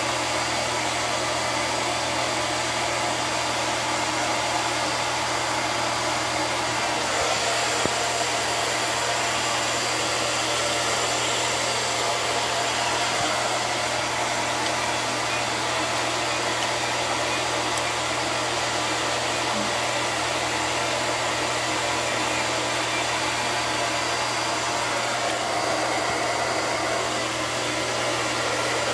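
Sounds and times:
fan whirring air: 4.8s - 21.5s.

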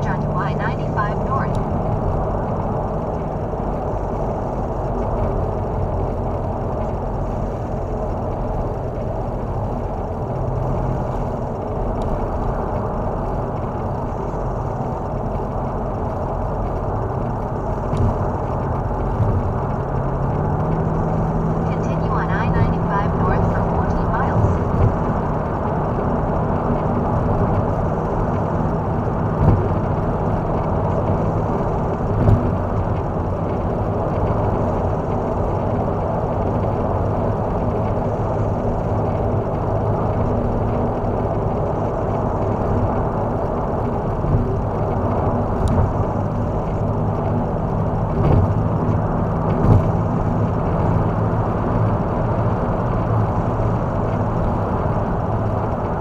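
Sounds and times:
car engine drone: 0.0s - 56.0s
tyre and road noise: 0.0s - 56.0s
road thumps: 29.2s - 30.4s, 48.0s - 50.4s.

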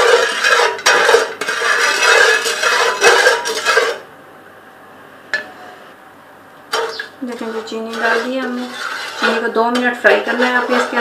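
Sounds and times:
metal spoon scraping a pot: 0.0s - 4.0s, 6.7s - 11.0s.

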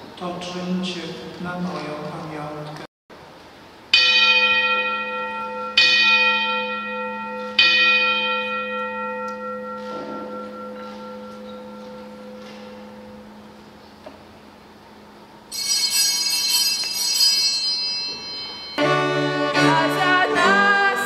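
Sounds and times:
church bell ringing: 3.9s - 13.8s, 15.5s - 20.7s.

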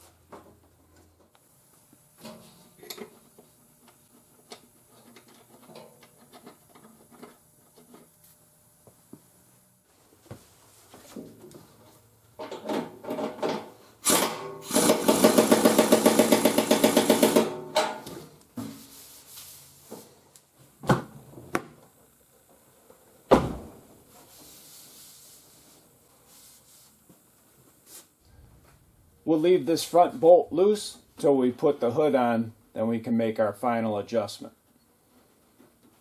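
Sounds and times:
air impact wrench rattling: 12.4s - 18.0s.

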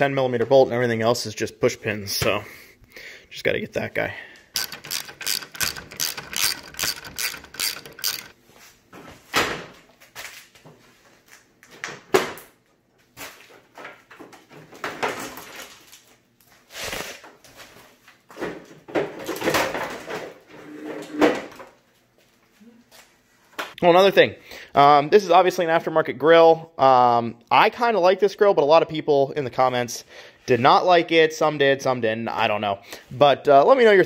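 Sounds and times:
socket ratchet clicking: 4.5s - 8.4s
plastic knocks and rattles: 4.6s - 8.4s.

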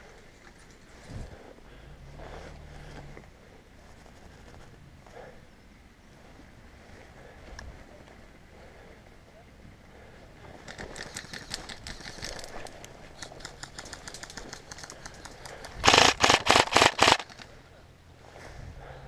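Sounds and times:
dry leaves and twigs crackling: 10.5s - 17.6s.

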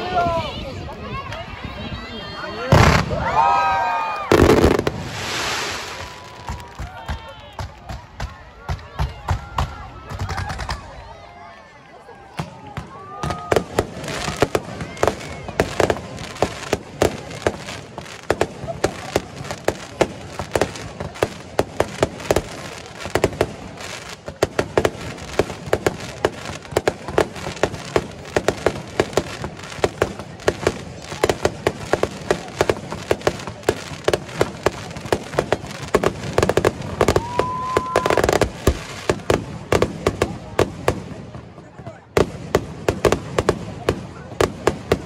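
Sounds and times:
fireworks bursting and crackling: 2.6s - 11.1s, 12.2s - 45.0s
rising firework whistle: 2.9s - 7.5s, 37.1s - 38.4s.

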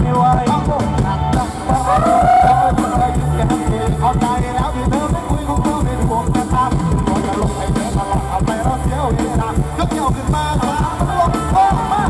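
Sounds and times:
drum and bass beat: 0.0s - 12.0s.

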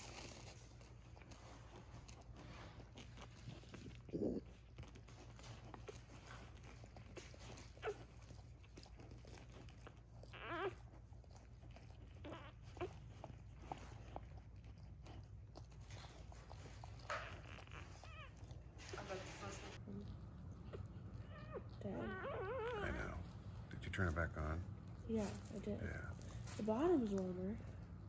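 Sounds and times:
dog licking puppies: 0.0s - 28.0s
puppies squeaking: 3.2s - 14.3s, 15.8s - 19.7s, 20.7s - 23.4s.

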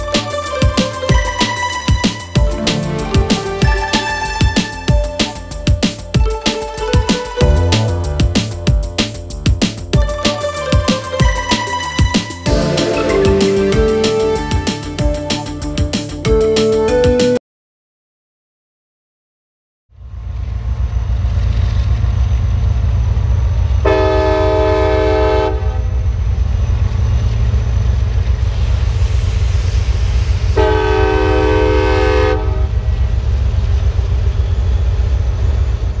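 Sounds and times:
freight train rumbling past: 0.0s - 17.3s, 20.0s - 36.0s
locomotive air horn blasts: 23.8s - 25.9s, 30.6s - 32.8s.

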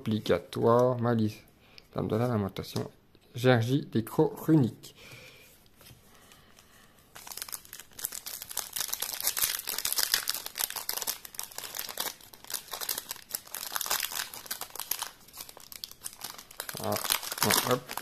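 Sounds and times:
foil wrapper crinkling: 7.1s - 18.0s.

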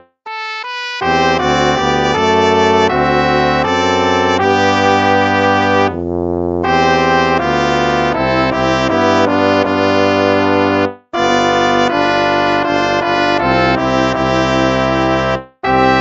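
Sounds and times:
brass-like hymn chords: 0.0s - 16.0s.

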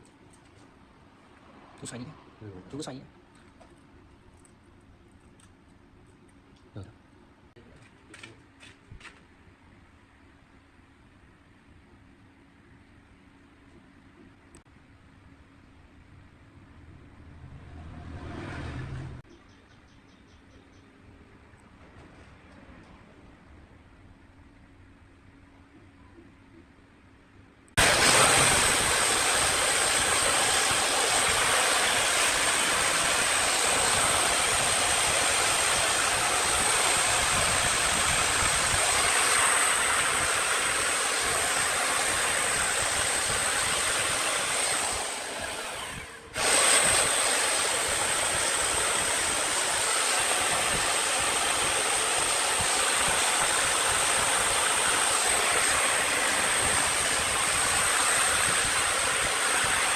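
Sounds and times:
chainsaw cutting log: 27.8s - 59.9s.

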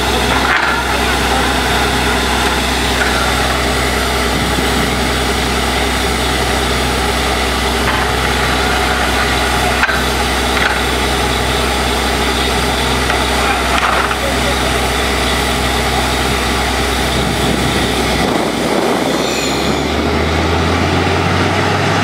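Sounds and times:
deep hum: 0.0s - 22.0s
drilling rig engine drone: 0.0s - 22.0s.

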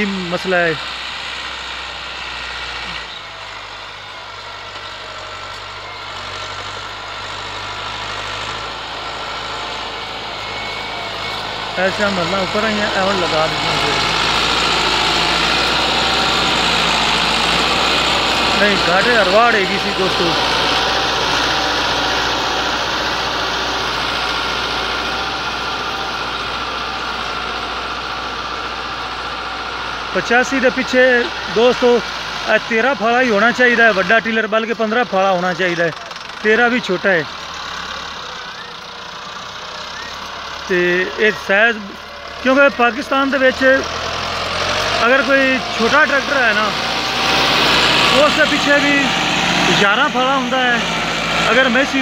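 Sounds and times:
tractor diesel engine under load: 0.0s - 52.0s.

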